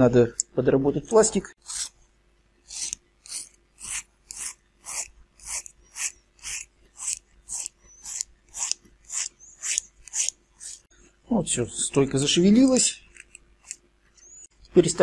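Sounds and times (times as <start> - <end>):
hand file rasping plastic: 1.6 - 2.0, 2.6 - 10.9, 12.7 - 14.5.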